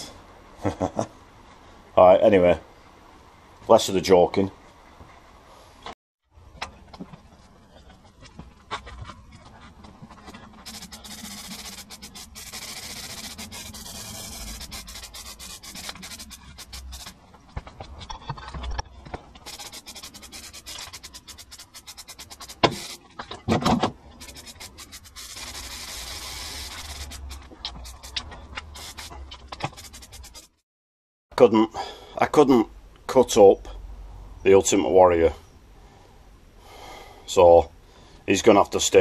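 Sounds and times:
aerosol can spraying: 0:10.6 - 0:17.2, 0:19.5 - 0:23.0, 0:24.2 - 0:30.5.

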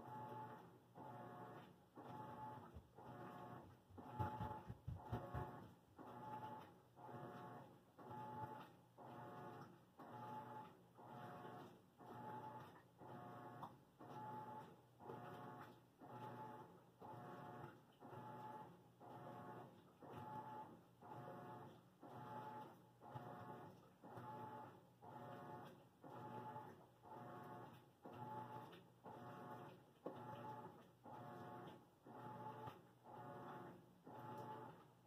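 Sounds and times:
washing machine motor hum: 0:00.0 - 0:35.0.

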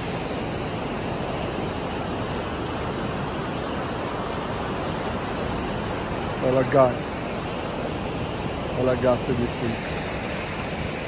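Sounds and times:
waves breaking on a beach: 0:00.0 - 0:11.0.

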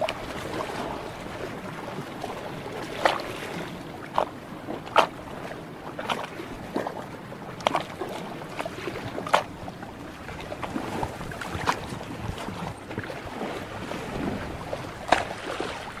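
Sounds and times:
sea water lapping: 0:00.0 - 0:16.0
water splashes: 0:00.0 - 0:16.0.

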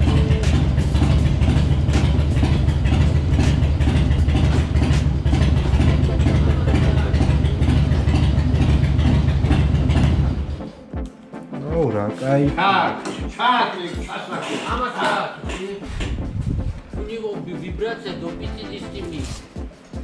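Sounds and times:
motorcycle engine idling: 0:00.0 - 0:10.7.

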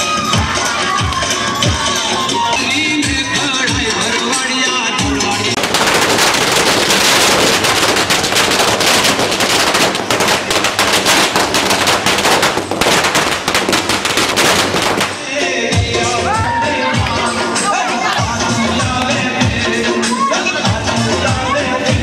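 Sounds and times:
firecrackers crackling: 0:05.3 - 0:15.7.

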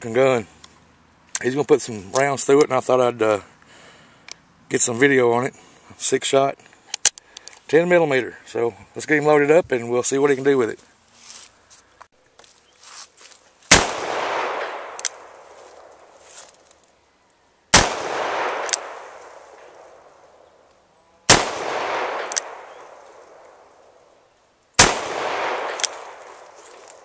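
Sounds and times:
revolver shots with rolling echo: 0:13.7 - 0:16.1, 0:17.7 - 0:20.4, 0:21.3 - 0:23.9, 0:24.8 - 0:26.6.

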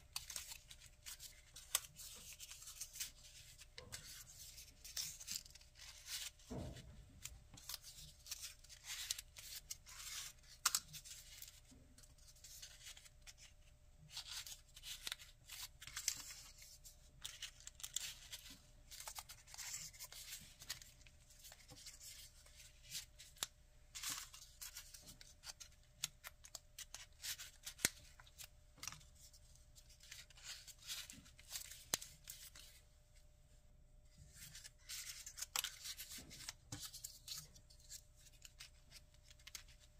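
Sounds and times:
paper rustling and scraping: 0:07.2 - 0:32.8.

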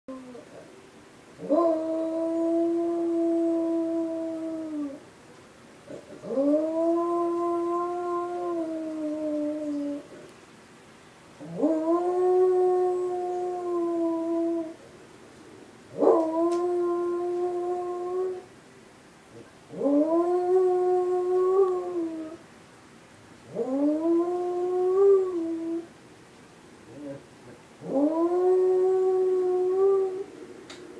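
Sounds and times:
dog howling: 0:16.0 - 0:18.5, 0:23.5 - 0:25.9, 0:27.8 - 0:30.3.

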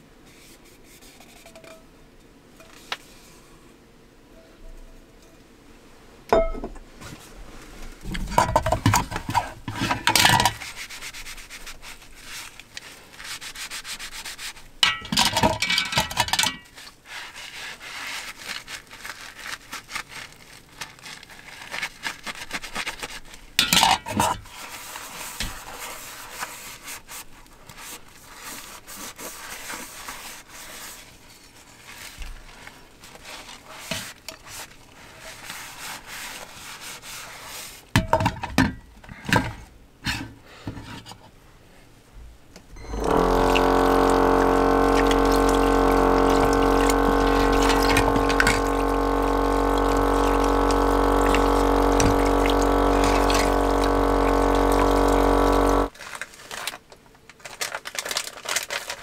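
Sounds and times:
sponge scrubbing metal cup: 0:08.1 - 0:37.9, 0:42.8 - 0:55.9.

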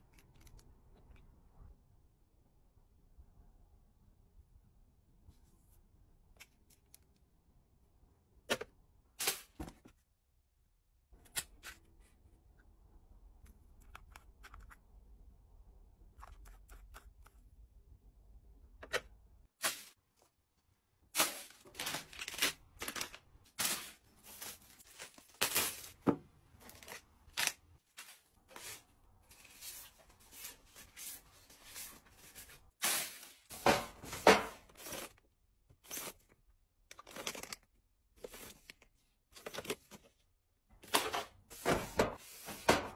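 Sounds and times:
plastic wrappers rustling: 0:21.2 - 0:26.0
items tapping on shelves: 0:21.2 - 0:27.0, 0:32.8 - 0:35.1, 0:40.8 - 0:42.9.

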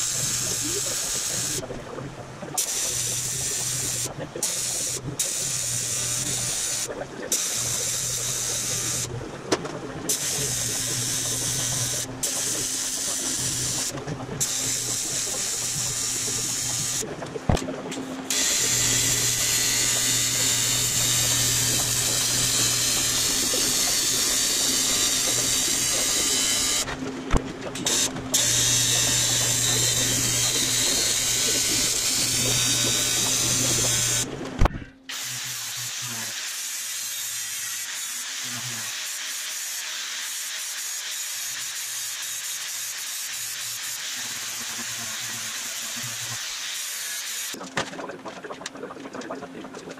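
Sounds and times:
handheld grinder sanding metal: 0:00.0 - 0:01.6, 0:18.3 - 0:26.9, 0:27.8 - 0:34.3, 0:35.1 - 0:47.6
welding arc buzzing and hissing: 0:00.0 - 0:01.6, 0:02.6 - 0:09.2, 0:10.1 - 0:17.6, 0:18.3 - 0:27.0, 0:27.8 - 0:34.3, 0:35.1 - 0:47.6.

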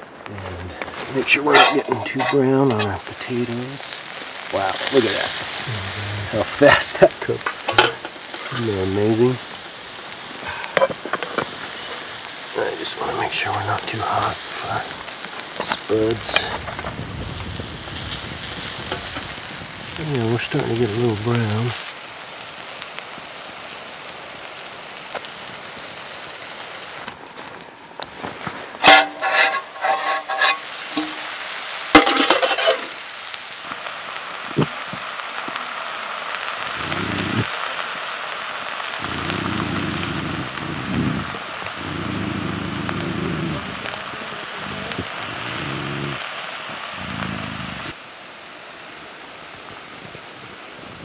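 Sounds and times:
food sizzling in frying pan: 0:00.0 - 0:51.0
utensils scraping and clinking pan: 0:01.2 - 0:03.1, 0:07.5 - 0:08.6, 0:28.8 - 0:31.3, 0:32.0 - 0:33.0.

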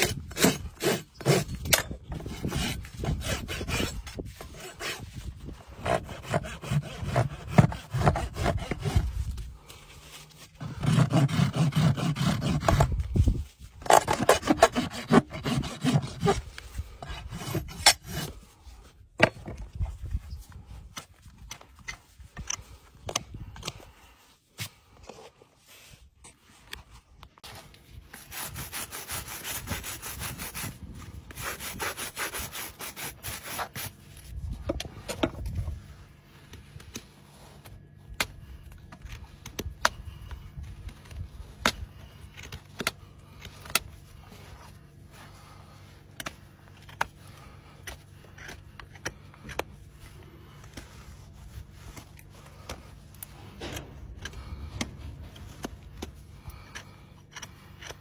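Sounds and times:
hoof knife paring hoof: 0:00.0 - 0:18.6, 0:36.4 - 0:58.0
stiff brush scrubbing hoof: 0:00.0 - 0:19.0, 0:27.4 - 0:58.0.

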